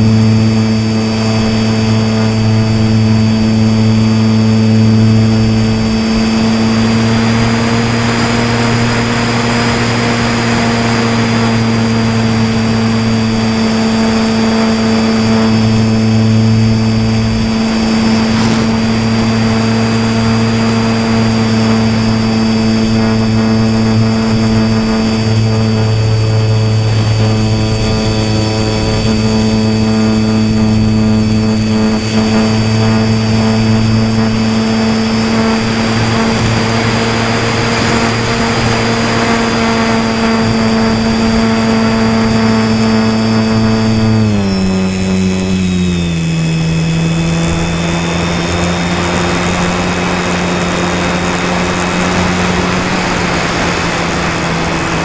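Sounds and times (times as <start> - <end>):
model plane motor and propeller: 0.0 - 55.0
wind rushing: 11.4 - 42.2.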